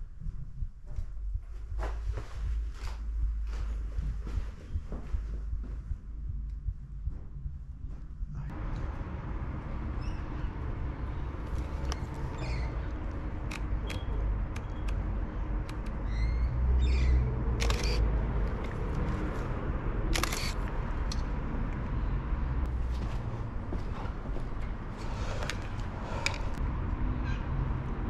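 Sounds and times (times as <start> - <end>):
low steady rumble: 0.0 - 28.0
camera shutter clicks: 17.6 - 18.0, 20.1 - 20.6.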